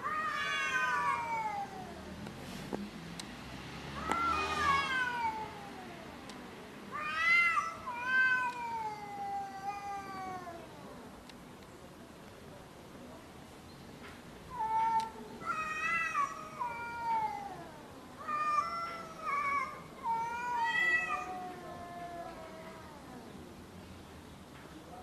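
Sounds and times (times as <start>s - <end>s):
cats yowling: 0.0s - 2.2s, 4.0s - 6.2s, 6.9s - 11.0s, 14.5s - 23.5s.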